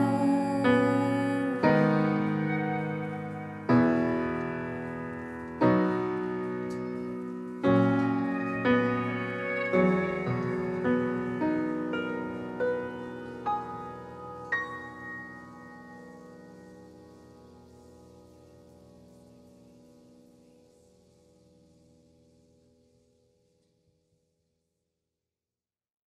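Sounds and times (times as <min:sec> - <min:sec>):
grand piano playing: 0:00.0 - 0:20.6.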